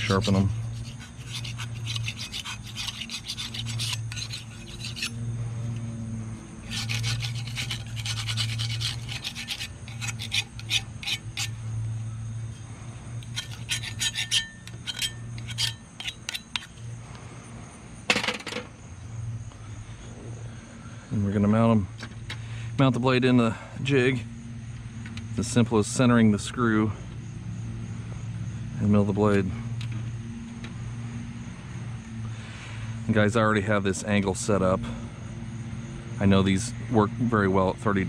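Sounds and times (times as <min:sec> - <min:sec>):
metal scraper scraping steel blade: 0:00.0 - 0:05.9, 0:06.6 - 0:11.6, 0:12.5 - 0:16.9
low hum: 0:00.0 - 0:33.2.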